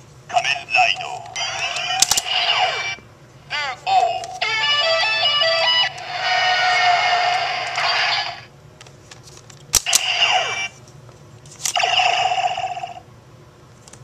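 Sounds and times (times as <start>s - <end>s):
toy belt electronic sound effect: 1.0s - 3.0s, 9.8s - 10.7s, 11.7s - 13.0s.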